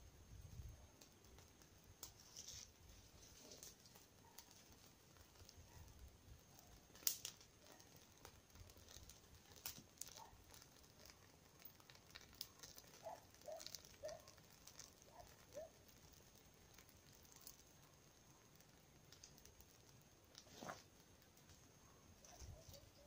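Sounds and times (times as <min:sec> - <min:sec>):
campfire crackling and popping: 0:00.0 - 0:23.0.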